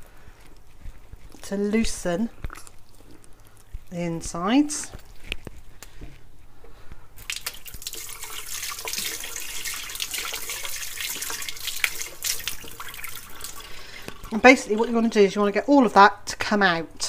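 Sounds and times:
hands rinsed under water: 7.2s - 15.5s.

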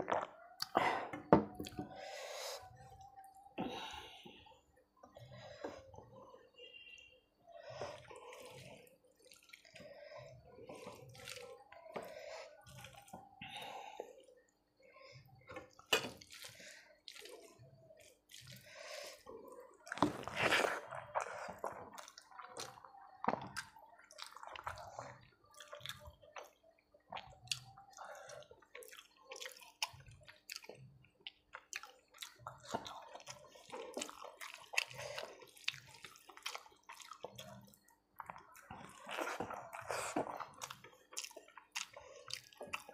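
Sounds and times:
hand squishing rice: 6.2s - 13.6s
chewing and lip smacks: 19.8s - 42.9s.

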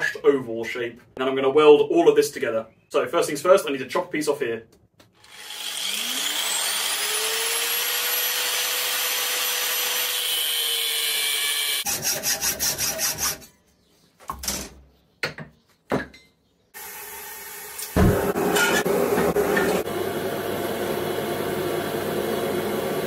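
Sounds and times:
angle grinder cutting steel: 5.2s - 13.4s
gas forge rushing: 16.8s - 23.0s.

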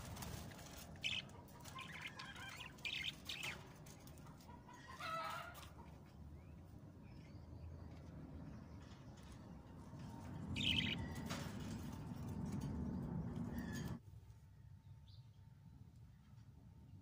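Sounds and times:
budgerigars chirping: 1.0s - 3.6s, 10.5s - 11.4s.

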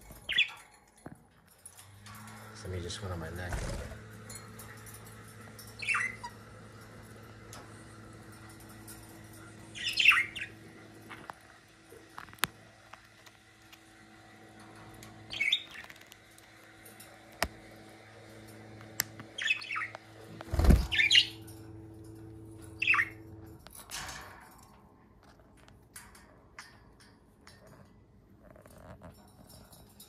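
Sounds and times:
low steady hum: 0.0s - 30.0s
budgerigars chirping and squawking: 0.3s - 0.6s, 5.7s - 6.4s, 9.8s - 10.6s, 15.3s - 16.0s, 19.4s - 20.0s, 20.6s - 21.4s, 22.8s - 23.2s.

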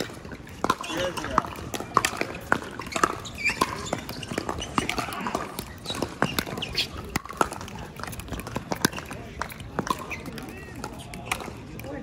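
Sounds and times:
paddles hitting plastic ball: 0.0s - 12.0s
shoe squeaks: 0.8s - 1.4s, 2.3s - 7.2s, 10.0s - 11.2s.

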